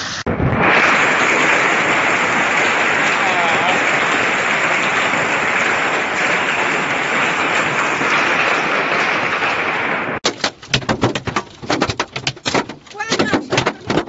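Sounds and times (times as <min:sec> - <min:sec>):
hailstones knocking on windshield: 0:00.4 - 0:14.0
hail clattering on ground and roofs: 0:00.8 - 0:14.0.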